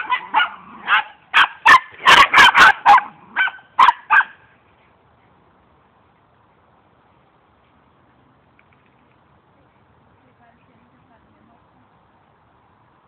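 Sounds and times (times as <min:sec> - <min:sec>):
dogs barking: 0:00.0 - 0:04.4.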